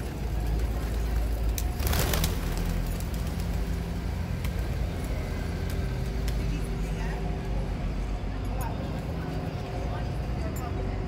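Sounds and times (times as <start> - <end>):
pigeon wings flapping: 0.0 - 6.6
low rumble of street traffic: 0.0 - 11.0.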